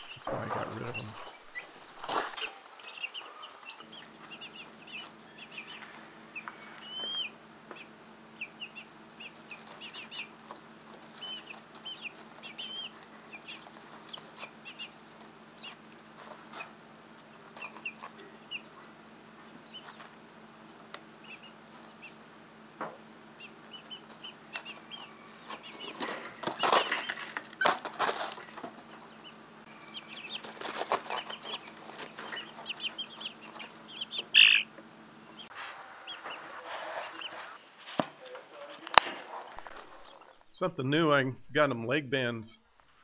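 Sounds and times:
steady low hum: 0.0 - 2.4
chicks peeping: 0.0 - 40.4.

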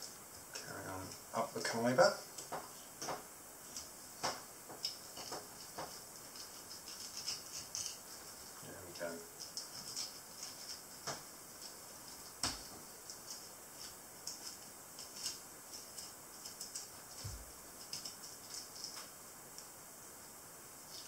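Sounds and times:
knife scraping along fish spine: 5.1 - 8.3.

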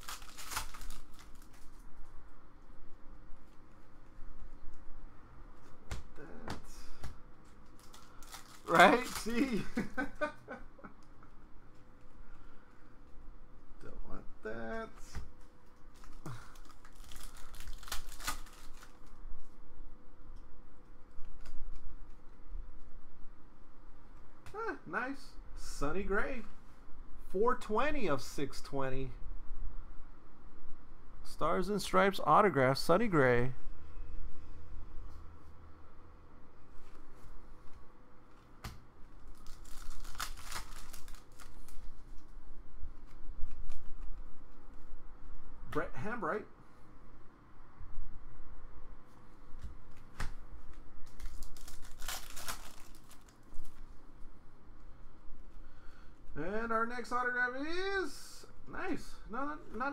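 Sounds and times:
cards being flipped through: 0.0 - 1.9, 6.9 - 9.6, 15.1 - 19.2, 36.8 - 42.2, 43.0 - 44.3, 49.6 - 53.8
packaging crinkling: 0.0 - 2.1, 7.4 - 9.7, 15.8 - 19.2, 39.1 - 42.3, 50.7 - 53.9.

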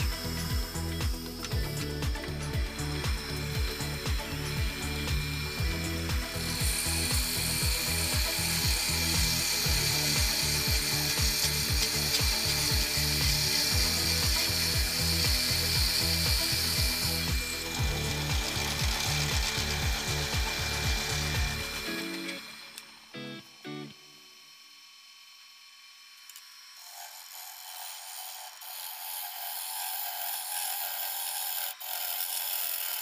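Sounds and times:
drill bit boring into wood: 0.0 - 23.0, 24.3 - 33.0
background music with steady beat: 0.0 - 24.2.

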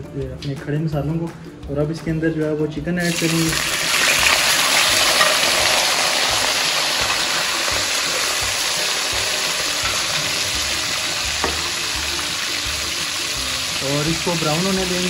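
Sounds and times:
chicken sizzling in hot oil: 3.1 - 15.0.

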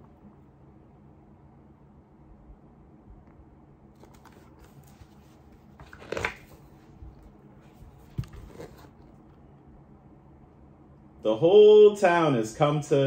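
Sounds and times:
paper pages rustling: 4.0 - 9.3.

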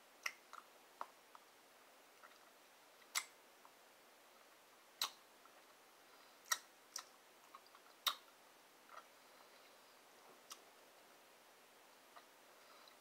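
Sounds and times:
mouth clicks and lip smacks: 0.2 - 1.5, 2.2 - 3.8, 5.0 - 5.6, 6.4 - 8.3.

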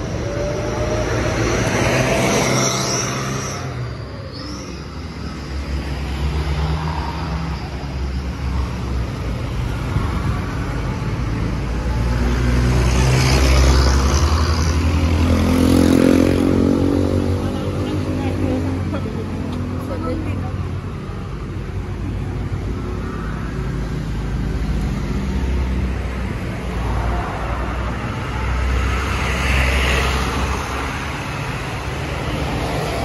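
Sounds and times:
cars and van driving past: 0.0 - 33.0
motorcycle passing: 12.9 - 18.9.

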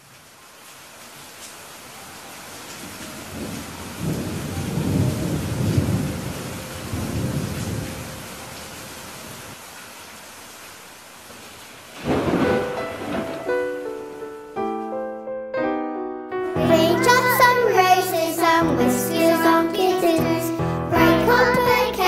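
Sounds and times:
rain hissing: 0.0 - 14.6, 16.5 - 22.0
thunder rolling: 3.2 - 8.3, 12.0 - 13.8.

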